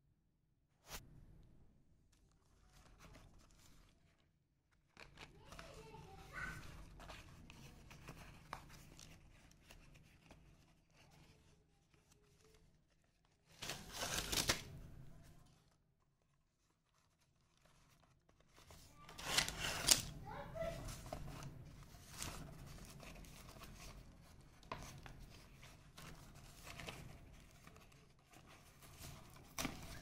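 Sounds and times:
card and paper ripping: 13.4 - 14.8, 17.3 - 23.9.

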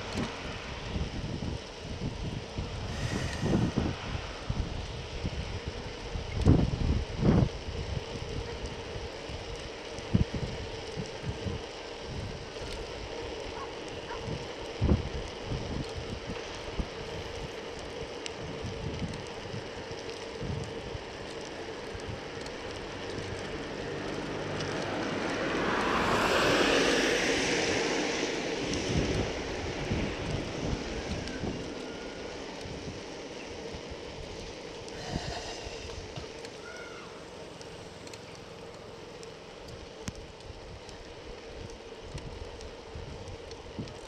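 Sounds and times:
wind buffeting microphone: 0.0 - 36.5, 39.7 - 44.0
road noise: 0.0 - 44.0
car passing: 22.7 - 33.8.

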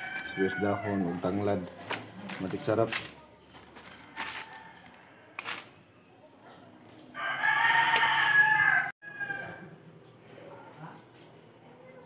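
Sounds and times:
rooster crowing: 0.0 - 1.9, 7.2 - 9.7.

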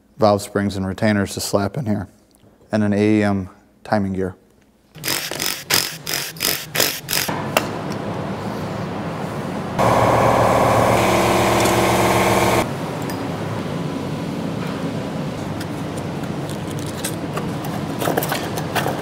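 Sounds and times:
steady mechanical hum: 1.8 - 19.0
cordless driver bursts: 9.8 - 12.6.

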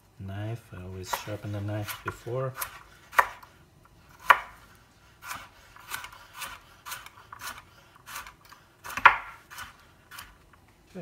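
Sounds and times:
knife chopping carrot on board: 1.1 - 3.5, 4.2 - 4.6, 5.2 - 10.4.

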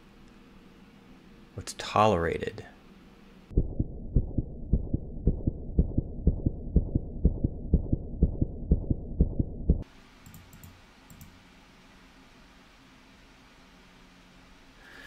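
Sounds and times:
muffled heartbeat double thump: 3.6 - 9.8.

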